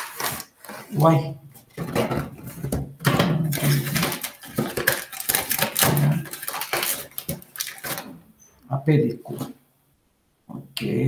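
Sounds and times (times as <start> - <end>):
plastic wrap crinkling: 0.0 - 8.2.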